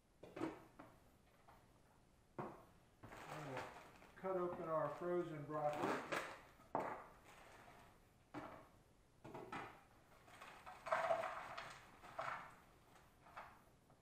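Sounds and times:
plastic bag crinkling: 0:03.0 - 0:06.5, 0:10.2 - 0:13.4.

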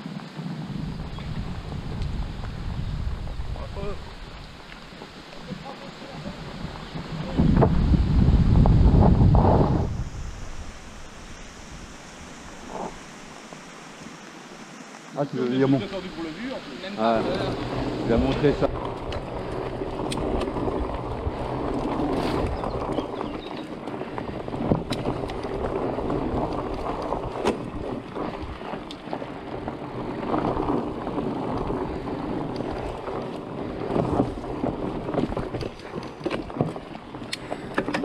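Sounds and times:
wind on microphone: 0:00.0 - 0:14.7, 0:17.0 - 0:38.0
tyres rumbling on dirt trail: 0:00.0 - 0:38.0
bike rattling and knocking: 0:17.0 - 0:38.0.

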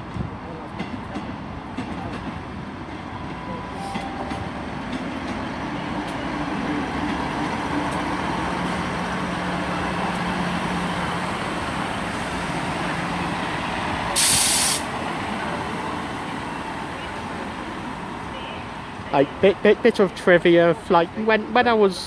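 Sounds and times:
train engine humming: 0:00.0 - 0:21.3
air brakes hissing: 0:14.2 - 0:14.9.

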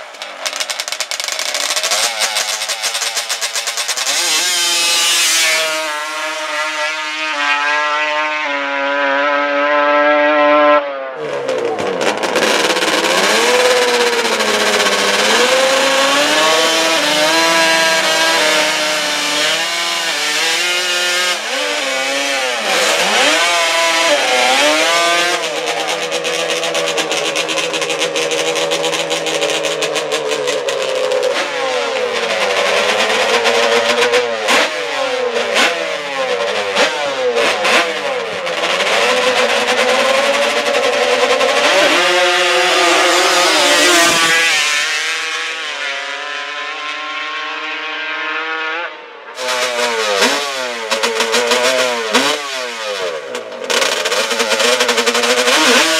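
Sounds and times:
atv engine revving: 0:00.0 - 0:55.9.

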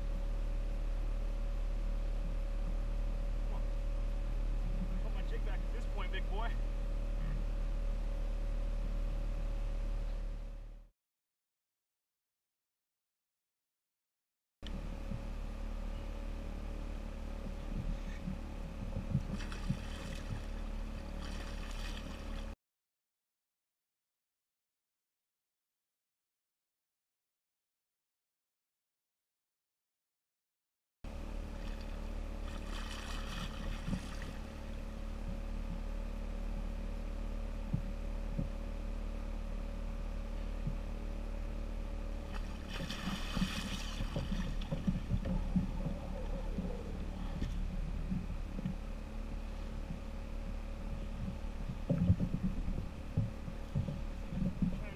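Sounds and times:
wind and water rumble: 0:00.0 - 0:10.8, 0:14.6 - 0:22.6, 0:31.1 - 0:54.9
fish thrashing in water: 0:19.3 - 0:22.6, 0:31.5 - 0:34.7, 0:42.3 - 0:47.1
fish thrashing at surface: 0:32.5 - 0:34.5, 0:42.4 - 0:44.9
dull knocks against kayak: 0:42.3 - 0:46.0.

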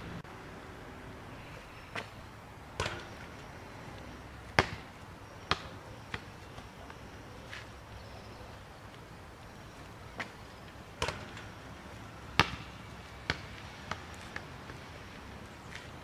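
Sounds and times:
ball bouncing on brick paving: 0:01.9 - 0:07.8, 0:09.8 - 0:16.0
ball knocking against hoop: 0:02.8 - 0:03.2.

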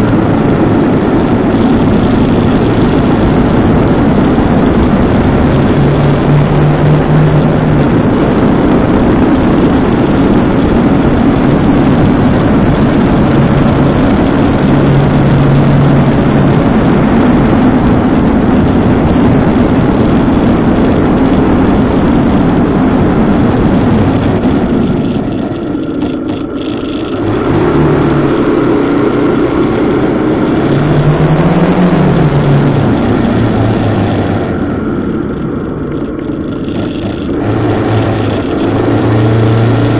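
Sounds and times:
motorcycle engine: 0:00.0 - 0:39.9
wind and road noise: 0:00.0 - 0:39.9.

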